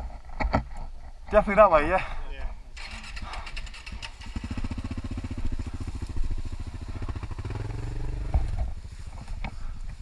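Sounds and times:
motorcycle engine running: 0:02.8 - 0:10.0.

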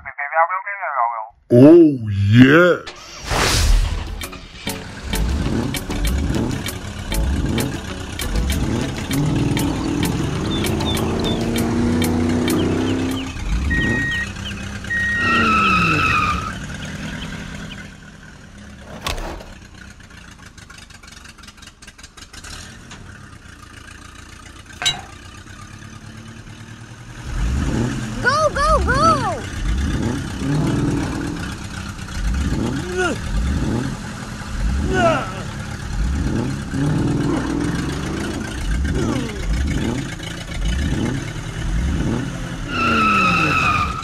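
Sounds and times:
toy vehicle engine sound effect: 0:09.1 - 0:17.2, 0:28.2 - 0:29.7.

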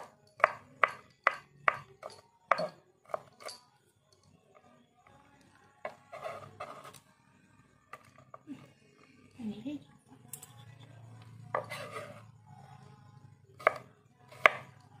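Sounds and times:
knife chopping on cutting board: 0:00.0 - 0:03.4, 0:13.6 - 0:14.7.

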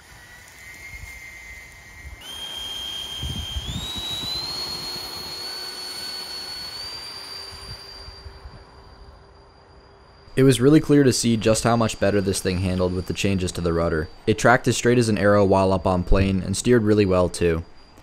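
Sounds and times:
rush of air: 0:00.0 - 0:09.3
electric ducted fan whining: 0:00.0 - 0:18.0.

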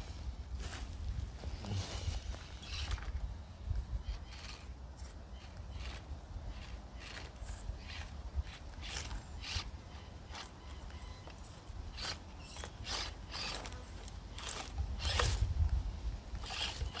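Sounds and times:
toy crawler scraping over rock: 0:02.3 - 0:03.2, 0:04.0 - 0:15.7, 0:16.3 - 0:17.0.

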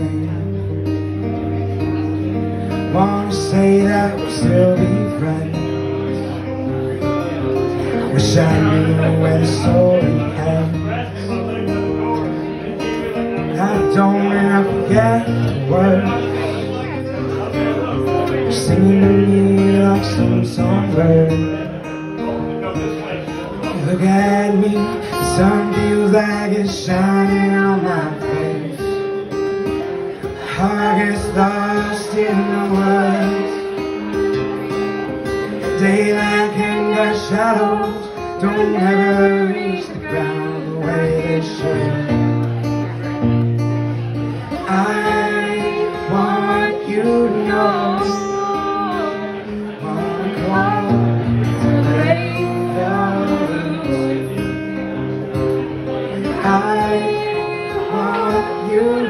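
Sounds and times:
acoustic guitar: 0:00.0 - 0:59.0
woman singing: 0:44.8 - 0:49.4.

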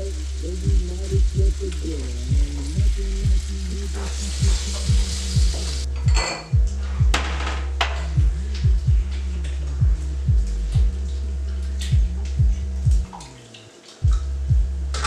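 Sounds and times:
food sizzling in frying pans: 0:00.0 - 0:05.9
hip-hop beat with deep bass: 0:00.0 - 0:13.2, 0:14.0 - 0:15.0.

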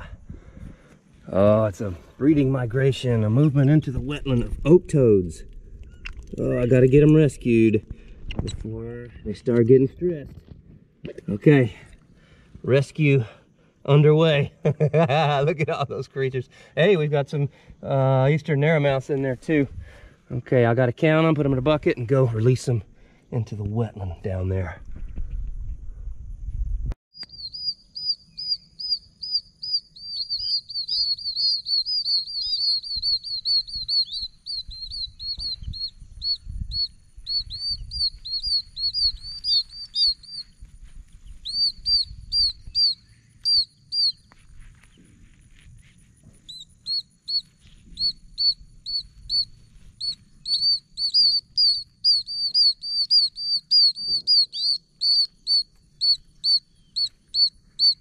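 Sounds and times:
toads peeping in chorus: 0:27.2 - 0:45.1, 0:45.8 - 0:58.0.

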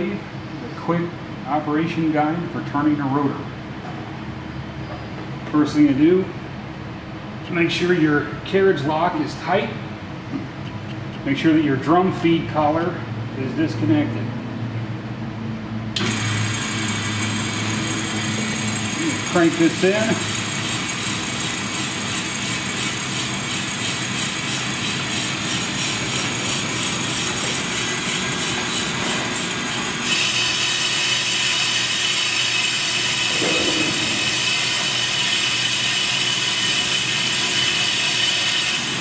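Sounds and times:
brake lathe running: 0:16.0 - 0:39.0.

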